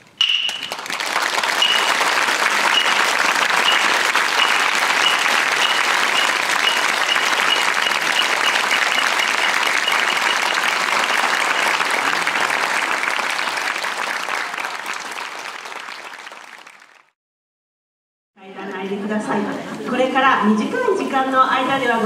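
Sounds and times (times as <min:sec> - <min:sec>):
audience applauding: 0:00.0 - 0:17.2.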